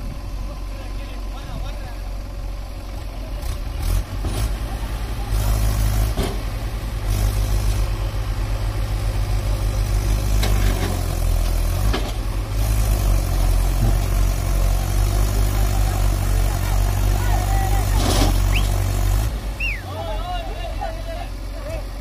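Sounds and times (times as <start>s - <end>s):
diesel engines running: 0.0s - 22.0s.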